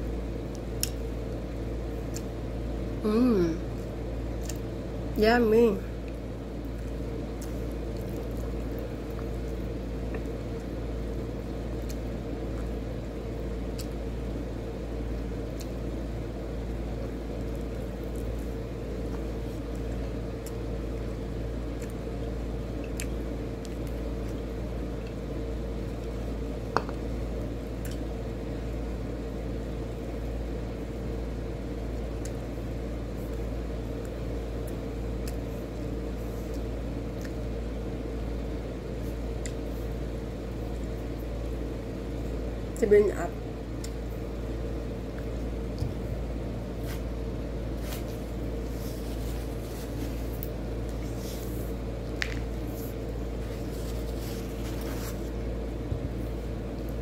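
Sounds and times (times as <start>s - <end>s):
low mechanical motor hum: 0.0s - 57.0s.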